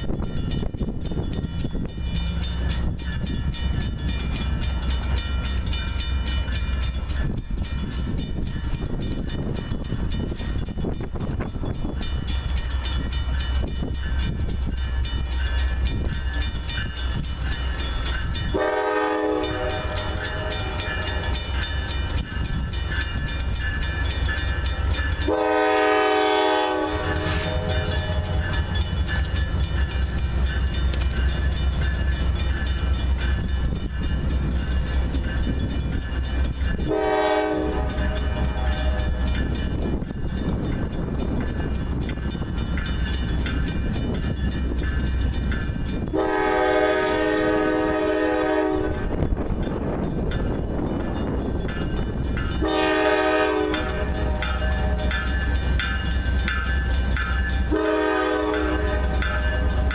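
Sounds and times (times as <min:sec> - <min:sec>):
crossing bell ringing: 0:00.0 - 0:59.9
diesel locomotive engine rumble: 0:00.0 - 0:59.9
train horn blasts: 0:18.5 - 0:21.2, 0:25.3 - 0:28.5, 0:36.8 - 0:39.3, 0:46.1 - 0:49.2, 0:52.6 - 0:55.1, 0:57.7 - 0:59.9.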